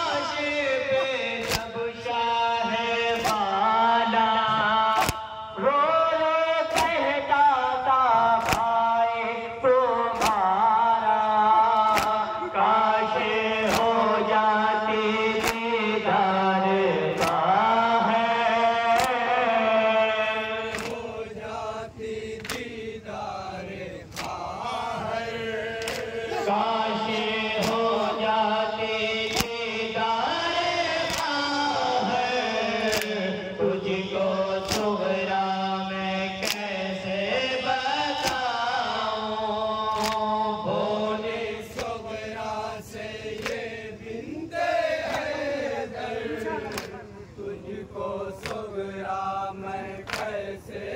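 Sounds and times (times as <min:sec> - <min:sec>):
men chanting a lament: 0:00.0 - 0:50.9
chest beating slaps: 0:01.0 - 0:01.8, 0:03.1 - 0:03.5, 0:04.9 - 0:05.4, 0:06.7 - 0:07.0, 0:08.4 - 0:08.8, 0:10.1 - 0:10.5, 0:11.8 - 0:12.4, 0:13.6 - 0:14.0, 0:17.1 - 0:17.5, 0:18.9 - 0:19.3, 0:20.7 - 0:21.1, 0:22.4 - 0:22.8, 0:24.1 - 0:24.6, 0:25.8 - 0:26.4, 0:29.3 - 0:29.6, 0:32.8 - 0:33.2, 0:38.2 - 0:38.5, 0:46.5 - 0:47.1, 0:48.4 - 0:48.7, 0:50.0 - 0:50.4.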